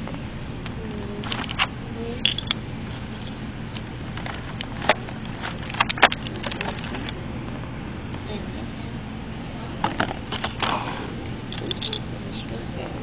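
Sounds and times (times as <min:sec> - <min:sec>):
low background hum: 0:00.0 - 0:13.0
plastic packaging crackling: 0:04.4 - 0:07.1.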